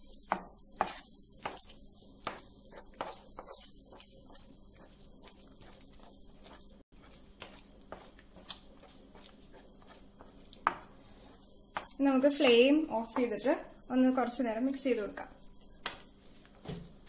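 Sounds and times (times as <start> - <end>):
faint sizzle: 0.0 - 17.0
spatula tapping a pan: 10.2 - 11.0.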